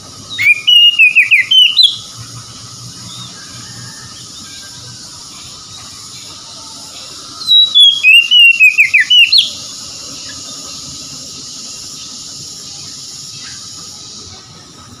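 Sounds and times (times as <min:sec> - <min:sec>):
steady high hiss: 0:00.0 - 0:15.0
bird singing whistled notes: 0:00.1 - 0:02.2, 0:07.4 - 0:14.3.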